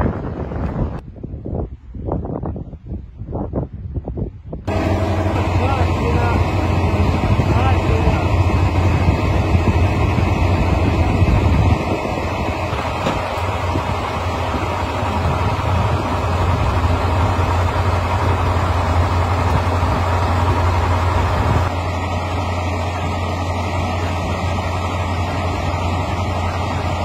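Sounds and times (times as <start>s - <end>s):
truck engine idling: 4.7s - 27.0s.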